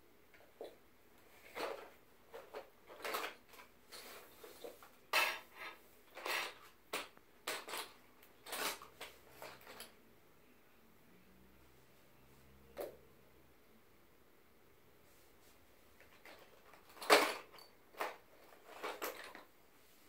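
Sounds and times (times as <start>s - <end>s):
pencils rattling in cardboard box: 1.3s - 10.0s, 16.0s - 19.5s.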